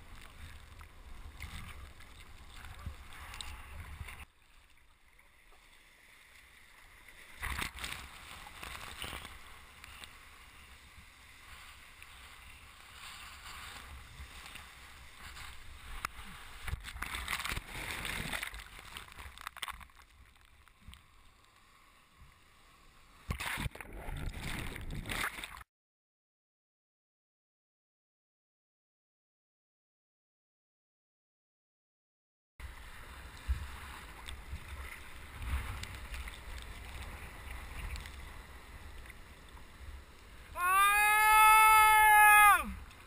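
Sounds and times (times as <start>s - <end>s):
muffled water sloshing and splashing: 0.0s - 25.6s, 32.6s - 40.6s
water rushing: 32.6s - 43.0s.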